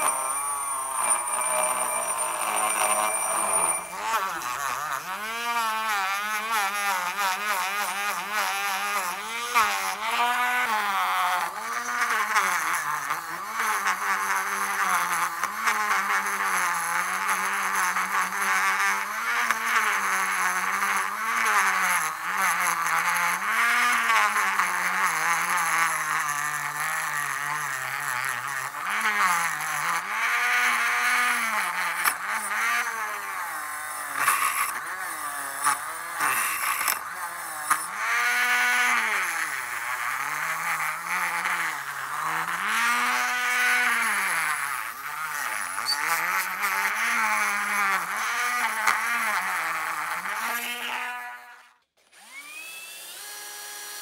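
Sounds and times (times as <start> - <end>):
wire brush scrubbing steel: 0.0 - 8.2
rotary tool motor whine: 0.0 - 54.0.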